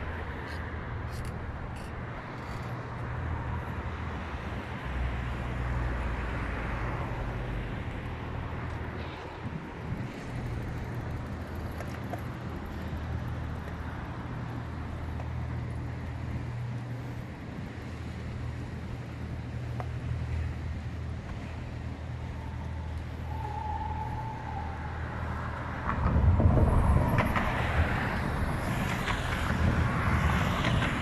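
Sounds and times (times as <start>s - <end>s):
city traffic rumble: 0.0s - 31.0s
wind buffeting microphone: 8.0s - 31.0s.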